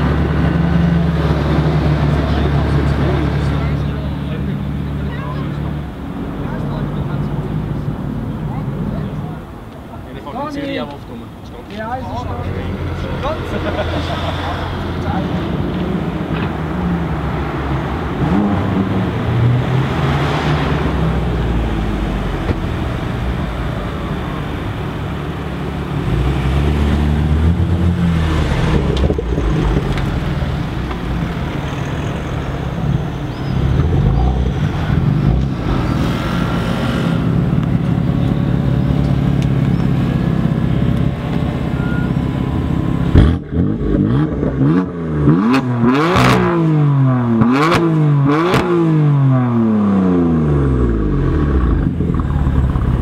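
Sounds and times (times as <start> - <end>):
car exhaust revving: 12.4 - 53.0.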